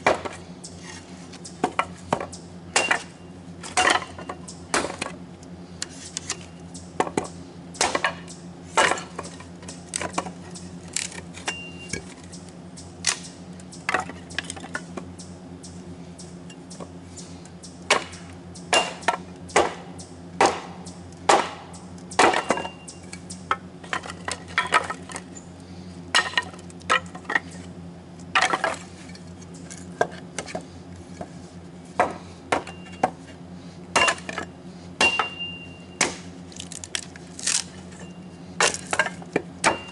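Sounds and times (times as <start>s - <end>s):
hatchet chopping kindling: 0.0s - 0.4s, 1.6s - 5.2s, 7.0s - 12.1s, 17.9s - 25.3s, 26.1s - 27.4s, 31.2s - 33.2s, 33.9s - 37.7s, 38.6s - 39.9s
steady low hum: 0.0s - 39.9s.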